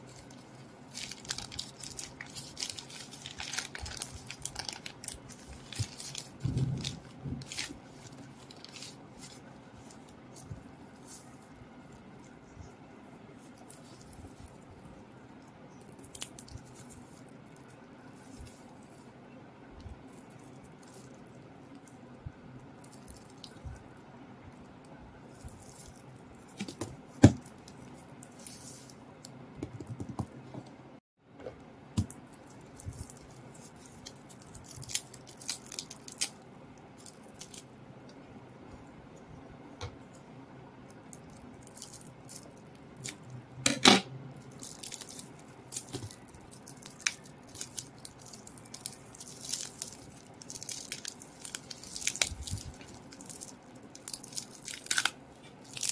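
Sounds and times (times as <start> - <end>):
plastic wrap crinkling: 0.0 - 11.5, 32.0 - 36.4, 40.9 - 43.3, 44.4 - 55.9
steady low hum: 0.0 - 55.9.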